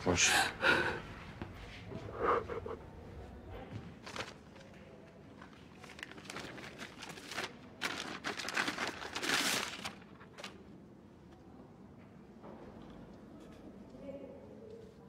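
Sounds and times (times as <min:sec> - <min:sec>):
paper envelope crinkling: 0:04.0 - 0:04.7, 0:05.4 - 0:10.6.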